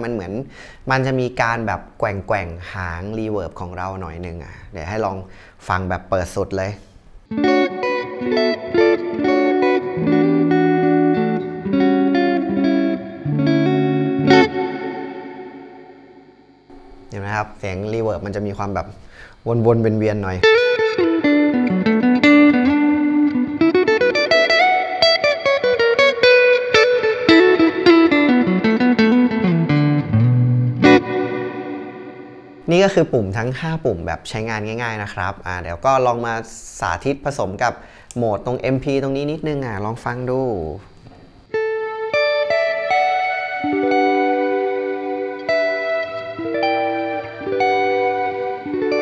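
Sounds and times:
electric guitar with swirling reverb: 0:07.3 - 0:17.6, 0:20.4 - 0:33.4, 0:41.1 - 0:49.0.

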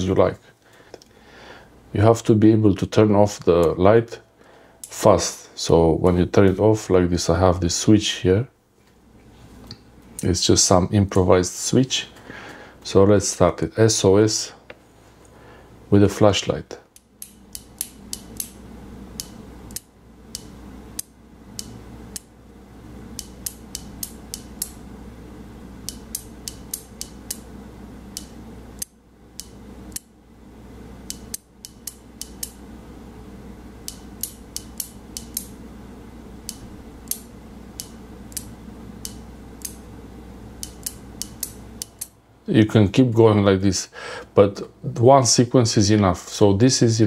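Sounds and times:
light switch clicking: 0:17.0 - 0:18.6, 0:19.2 - 0:22.3, 0:23.2 - 0:24.8, 0:25.8 - 0:27.5, 0:28.1 - 0:30.1, 0:31.1 - 0:32.6, 0:33.8 - 0:35.6, 0:36.4 - 0:39.8, 0:40.6 - 0:42.1.

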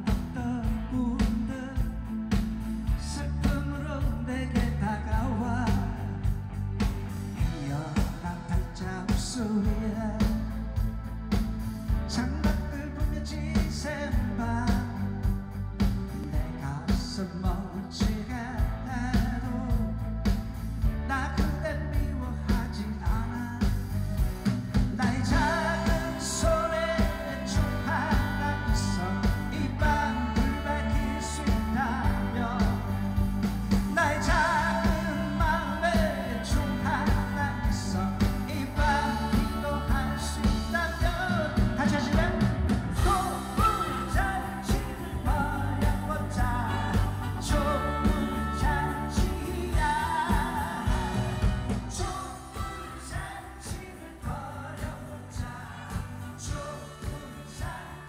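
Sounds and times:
bass: 0:00.0 - 0:58.0
person singing pop-rock live: 0:00.0 - 0:58.0
drum beat: 0:24.2 - 0:57.9.

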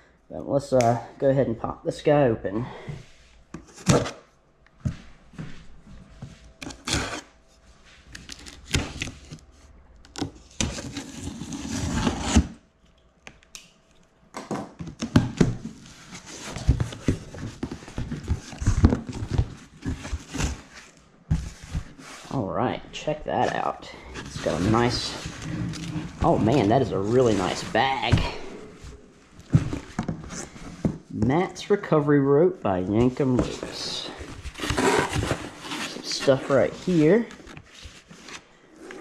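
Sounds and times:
box flaps rustling: 0:14.7 - 0:22.3, 0:23.3 - 0:31.1, 0:33.0 - 0:39.0.

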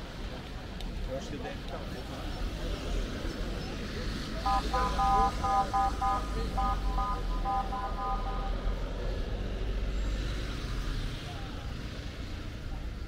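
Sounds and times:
low street rumble: 0:00.0 - 0:13.0
short high beeps: 0:04.5 - 0:08.6.

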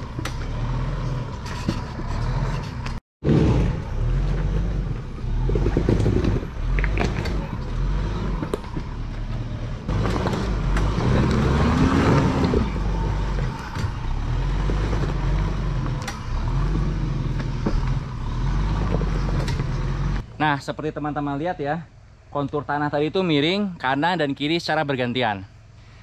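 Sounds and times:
knocks and clunks: 0:00.0 - 0:20.3
diesel engine revving: 0:00.0 - 0:22.3.

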